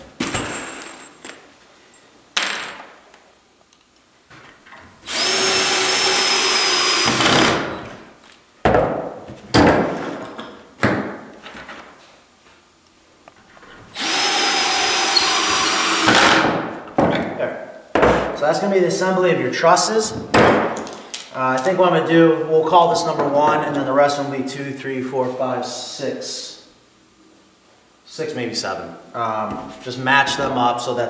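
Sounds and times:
cordless drill driving screws: 0:05.0 - 0:07.8, 0:14.0 - 0:16.5.

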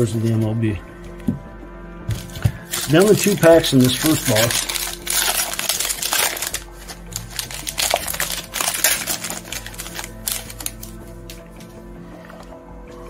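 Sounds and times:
plastic foil wrappers crinkling: 0:02.1 - 0:11.7.

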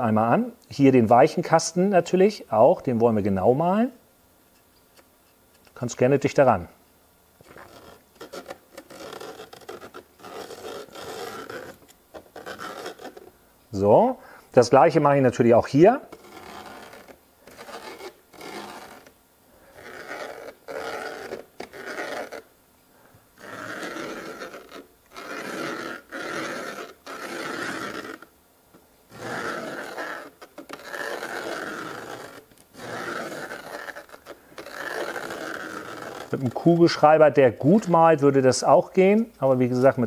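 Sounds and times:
pen scraping on track and foam: 0:07.4 - 0:13.3, 0:15.8 - 0:22.5, 0:23.4 - 0:28.3, 0:29.1 - 0:38.0.

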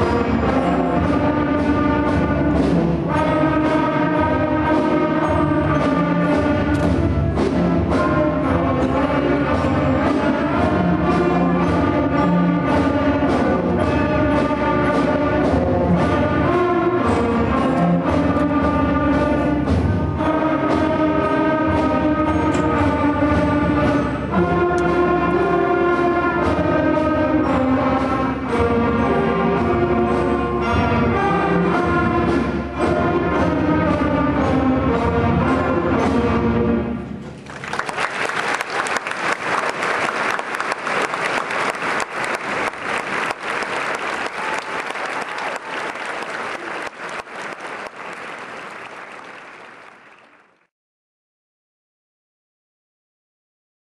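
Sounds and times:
concert band playing: 0:00.0 - 0:50.3
audience applause: 0:37.4 - 0:50.7.

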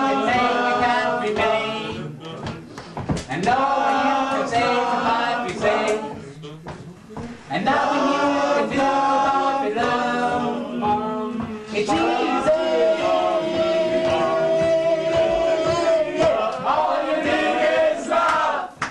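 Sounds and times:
group singing unaccompanied: 0:00.0 - 0:18.9.

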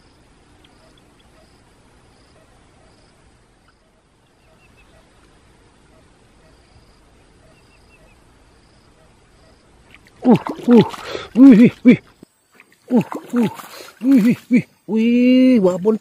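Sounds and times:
insect chirping buzzes: 0:00.0 - 0:16.0
bird chirping: 0:03.6 - 0:09.7.

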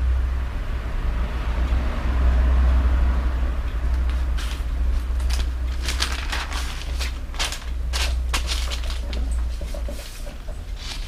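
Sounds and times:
steady low hum: 0:00.0 - 0:11.0
paper rustling: 0:03.9 - 0:11.0.

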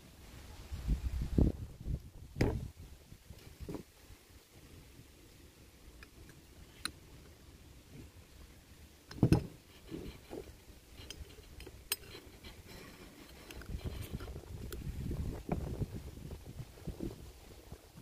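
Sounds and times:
metal parts clicking and clinking: 0:09.1 - 0:14.8.

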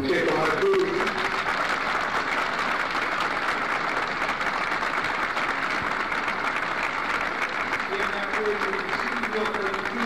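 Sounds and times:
large crowd applauding: 0:00.0 - 0:10.0.

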